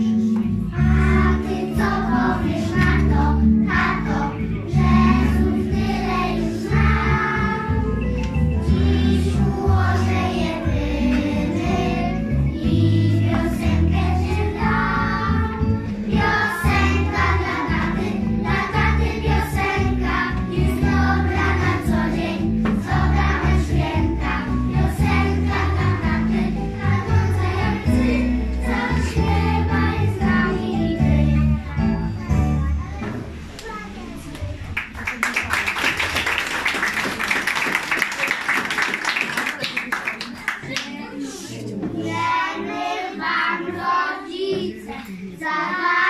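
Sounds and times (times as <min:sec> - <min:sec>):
children singing: 0:00.0 - 0:32.0, 0:41.3 - 0:46.0
backing music with bass line: 0:00.0 - 0:33.0.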